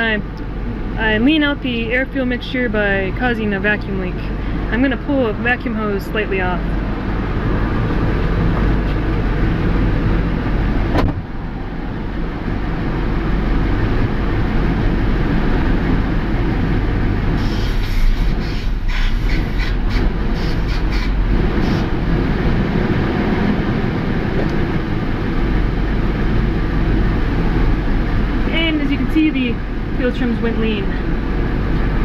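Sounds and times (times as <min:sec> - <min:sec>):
truck engine idling: 0:00.0 - 0:32.0
short scratchy noises: 0:17.4 - 0:21.9.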